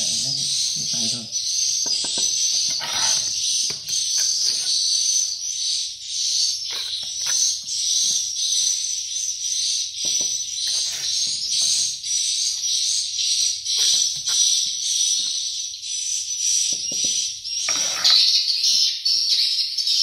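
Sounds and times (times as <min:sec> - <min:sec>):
trowel scraping mortar on bricks: 0:01.9 - 0:05.4, 0:06.3 - 0:08.3, 0:10.5 - 0:12.7, 0:13.7 - 0:14.7, 0:17.7 - 0:18.4.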